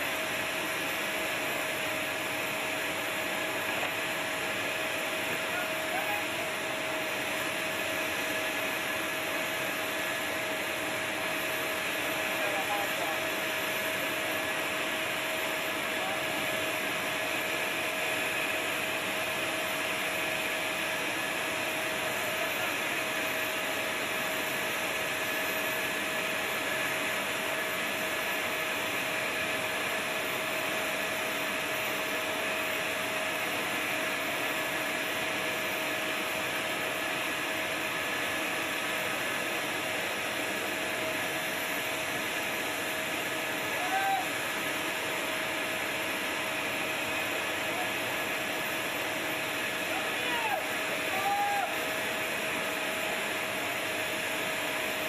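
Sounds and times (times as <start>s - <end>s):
gas turbine whine and hiss: 0.0s - 55.0s
constant high tone: 4.7s - 6.7s.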